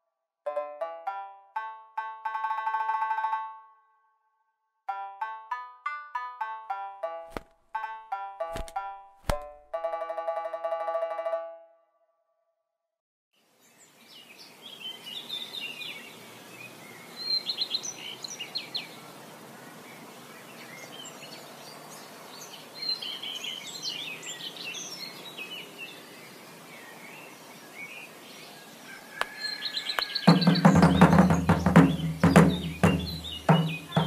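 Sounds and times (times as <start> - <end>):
steady background hiss: 13.4 - 29.2
birds chirping: 13.6 - 34.0.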